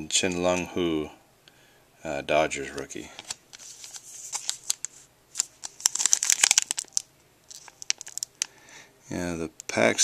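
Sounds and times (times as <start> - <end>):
wrapper crinkling and tearing: 3.2 - 8.6.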